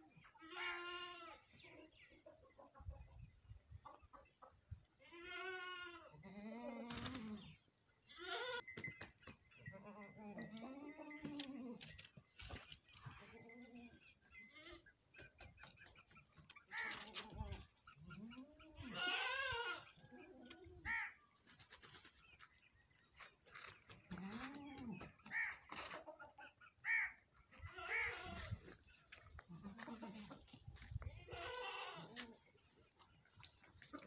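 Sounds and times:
goats bleating: 0:18.2 - 0:20.0, 0:27.6 - 0:28.6, 0:29.4 - 0:30.5, 0:31.1 - 0:32.4.

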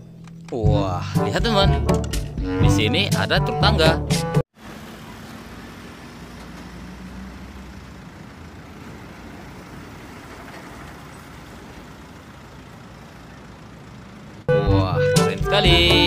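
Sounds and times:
boom lift engine humming: 0:04.6 - 0:16.0.

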